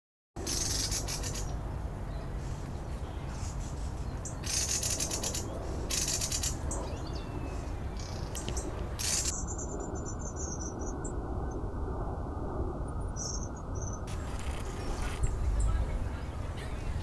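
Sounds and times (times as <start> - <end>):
birds giving rattling alarm calls: 0.4 - 1.6, 4.2 - 7.2, 8.0 - 10.5.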